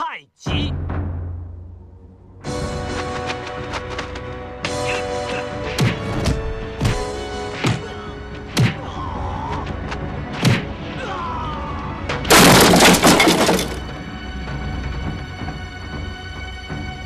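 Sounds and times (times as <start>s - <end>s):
film music score: 0.0s - 12.3s, 13.8s - 17.0s
loud crash into drums: 12.3s - 13.8s.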